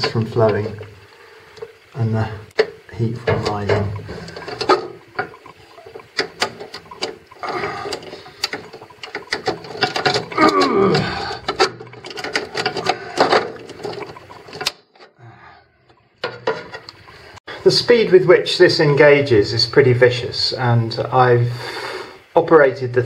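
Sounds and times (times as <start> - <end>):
metal scraping: 2.6 - 15.1.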